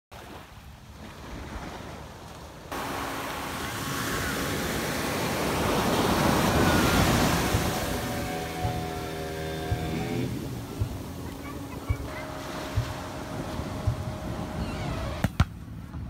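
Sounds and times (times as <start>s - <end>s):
waves breaking on beach: 0.1s - 15.9s
wind on microphone: 2.7s - 15.2s
steady hum: 2.7s - 16.0s.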